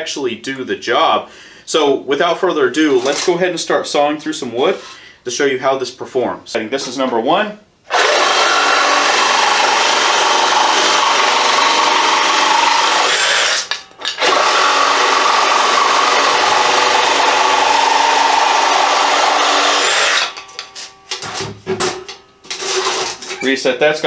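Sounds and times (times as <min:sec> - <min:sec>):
reciprocating saw cutting wood: 0:07.9 - 0:20.4.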